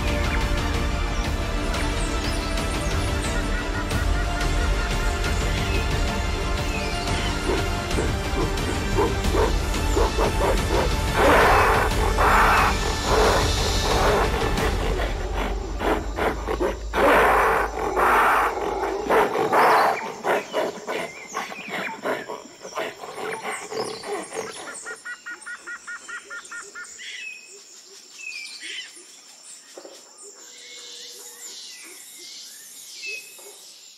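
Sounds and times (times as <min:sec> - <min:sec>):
music: 0:00.0 - 0:24.8
deep animal roars: 0:07.1 - 0:24.6.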